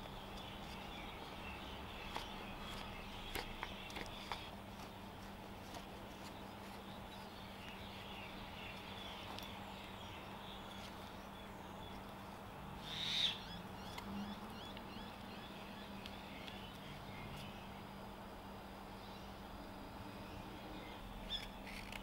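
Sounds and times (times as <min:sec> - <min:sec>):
birds calling: 0:00.0 - 0:17.9, 0:20.2 - 0:22.0
low steady hum: 0:00.0 - 0:22.0
shrill bird call: 0:12.8 - 0:15.2.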